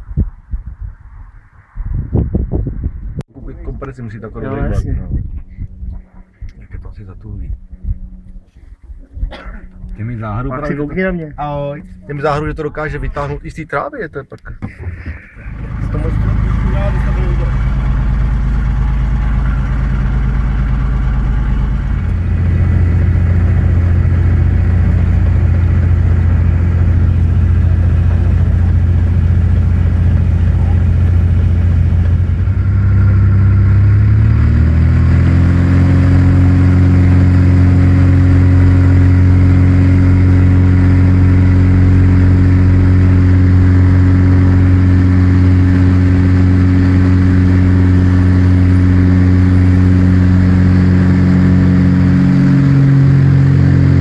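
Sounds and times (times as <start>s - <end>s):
light aircraft engine and propeller: 14.7s - 54.0s.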